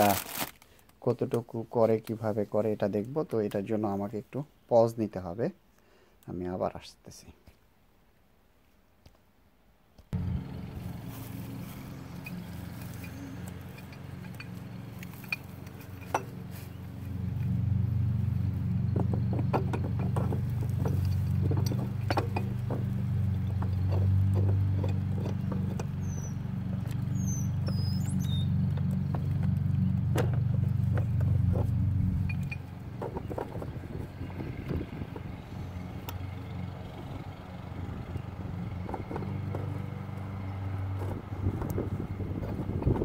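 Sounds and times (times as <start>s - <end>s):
low motor hum: 10.1s - 43.0s
pipe wrench clinking on metal: 12.2s - 16.4s, 32.2s - 33.2s.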